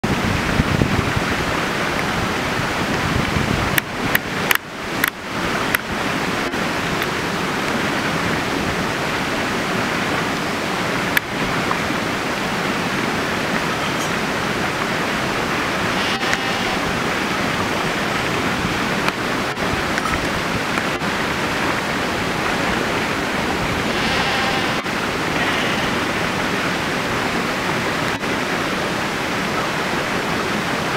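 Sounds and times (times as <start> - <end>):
steady rushing noise: 0.0 - 30.9
sheep bleating: 15.9 - 17.0, 23.8 - 26.1.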